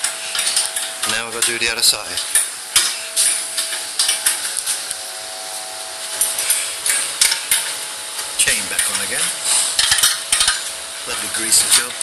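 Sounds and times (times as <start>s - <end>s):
metallic clinks and scraping of tools: 8.8s - 11.6s.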